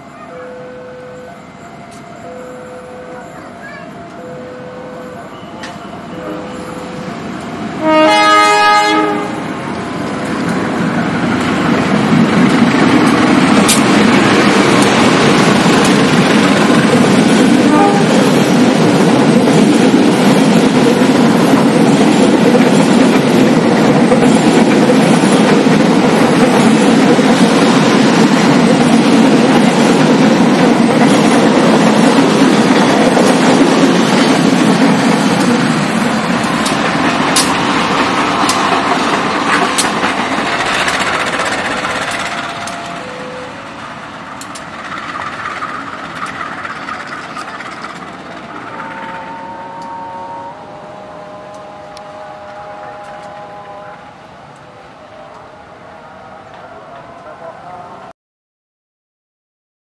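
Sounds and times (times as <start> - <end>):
train wheels rumbling on rails: 0.0 - 58.0
sharp rail clicks: 9.7 - 19.8, 29.4 - 49.2.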